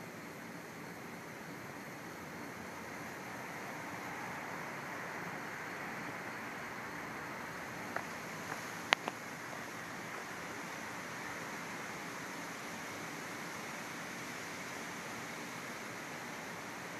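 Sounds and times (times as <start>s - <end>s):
rushing outdoor hiss: 0.0s - 16.9s.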